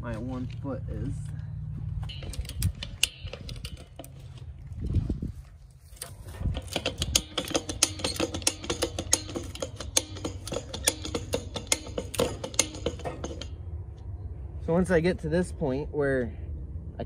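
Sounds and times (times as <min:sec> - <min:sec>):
ratchet fence stretcher clicking: 0:02.1 - 0:04.4, 0:06.0 - 0:13.6.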